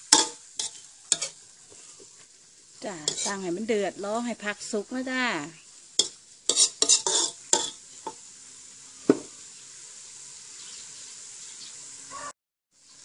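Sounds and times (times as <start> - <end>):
metal spatula scraping wok: 0.0 - 3.7, 6.0 - 8.2
food sizzling: 0.0 - 13.0.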